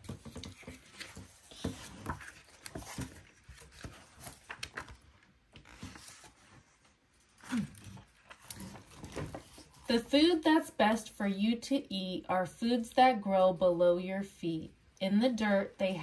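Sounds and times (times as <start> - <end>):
paper rustling: 0.0 - 10.0.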